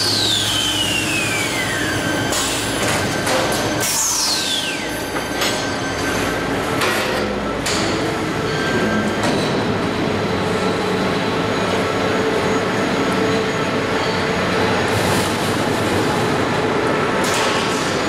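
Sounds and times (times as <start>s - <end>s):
falling machine whine: 0.0s - 6.3s
factory machinery din: 0.0s - 18.0s.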